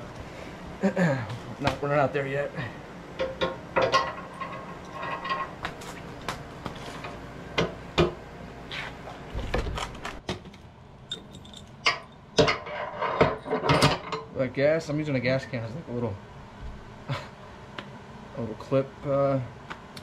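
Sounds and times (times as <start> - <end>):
metal parts clinking: 11.0 - 14.3.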